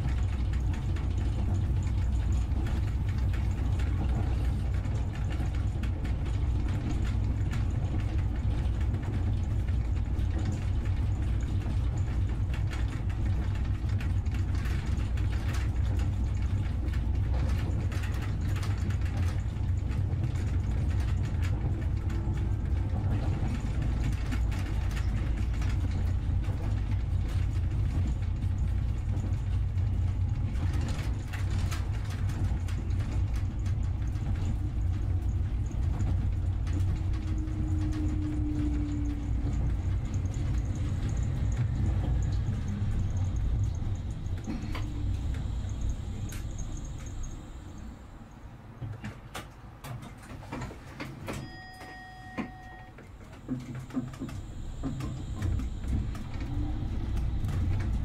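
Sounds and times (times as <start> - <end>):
vehicle engine rumble: 0.0 - 51.0, 53.0 - 58.0
short beep: 51.4 - 52.9.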